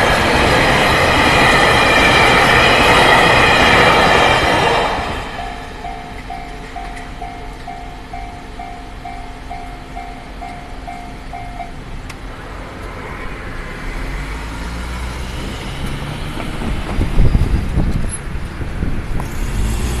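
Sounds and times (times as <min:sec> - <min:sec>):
cars and truck passing: 0:00.0 - 0:20.0
level crossing bell clanging: 0:05.3 - 0:11.8.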